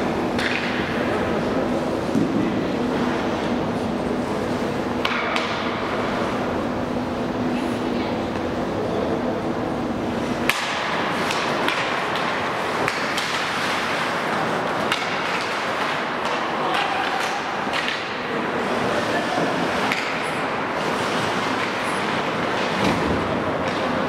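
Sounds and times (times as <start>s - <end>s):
hockey sticks clacking: 0.3s - 1.1s, 5.0s - 5.8s, 10.3s - 24.0s.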